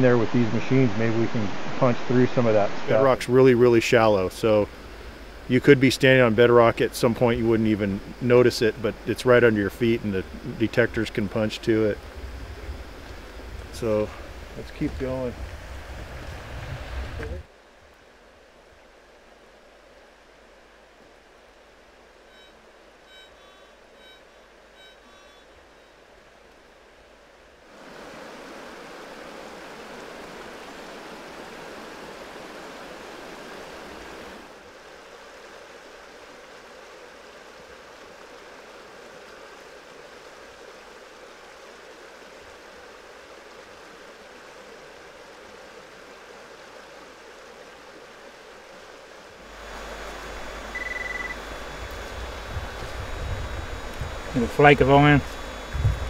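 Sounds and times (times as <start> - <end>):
creek water rushing over rapids: 0.0 - 23.2, 23.8 - 56.0
short high beep: 22.3 - 24.2, 50.7 - 51.4.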